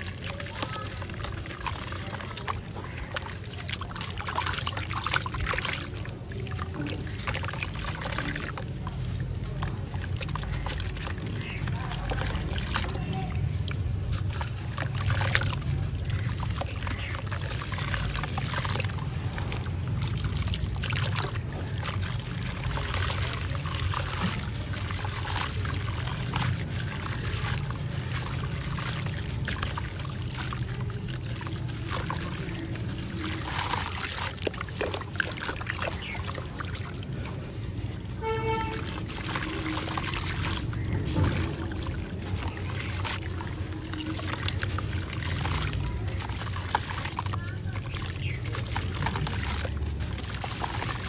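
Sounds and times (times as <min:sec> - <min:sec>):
grit pattering into water: 0:00.0 - 0:51.0
gritty crackling and crunching: 0:00.0 - 0:51.0
steady low rumble: 0:02.1 - 0:51.0.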